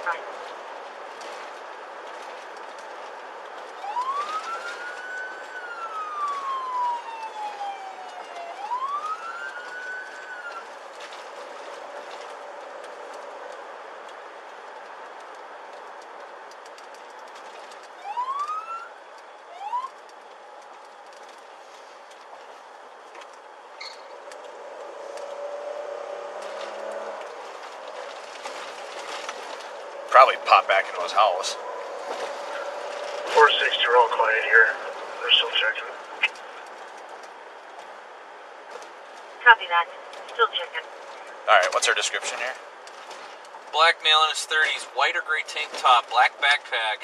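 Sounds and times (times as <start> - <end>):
road noise: 0.0 - 47.0
police siren wail: 2.4 - 15.2, 15.8 - 22.8, 24.2 - 37.6
short rising siren chirps: 3.8 - 10.7, 18.0 - 20.0.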